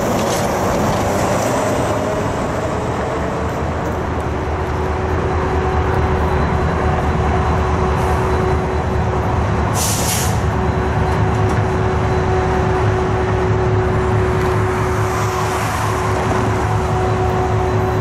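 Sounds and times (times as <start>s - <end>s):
diesel locomotive rumbling: 0.0s - 18.0s
air hiss: 9.8s - 10.4s.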